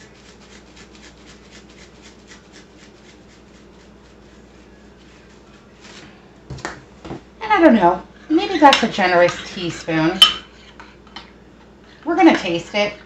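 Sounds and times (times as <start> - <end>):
seasoning shaken from container: 0.0 - 5.6.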